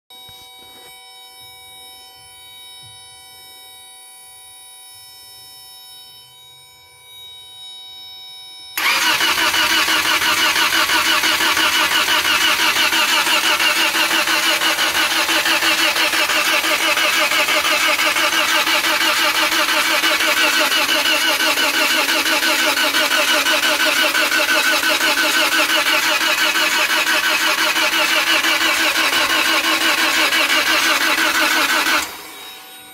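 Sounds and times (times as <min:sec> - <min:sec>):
starter motor cranking engine: 0:08.8 - 0:32.5.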